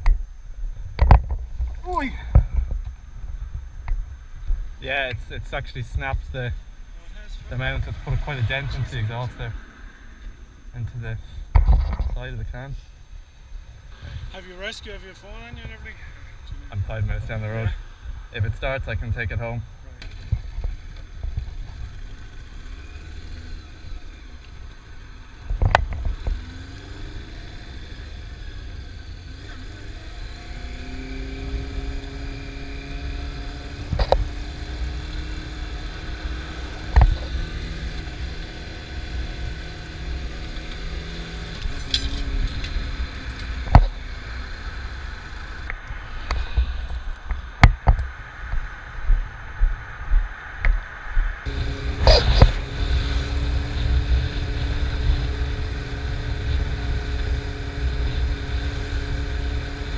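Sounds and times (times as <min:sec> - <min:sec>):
motorcycle engine running: 0:19.9 - 0:47.9, 0:51.5 - 0:59.9
wind rumble on microphone: 0:41.0 - 0:59.7
sharp thumps: 0:51.5 - 0:59.9.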